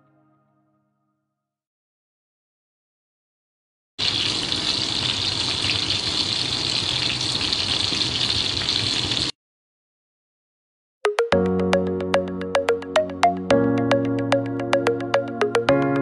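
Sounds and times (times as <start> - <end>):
chicken sizzling in hot oil: 4.0 - 9.3.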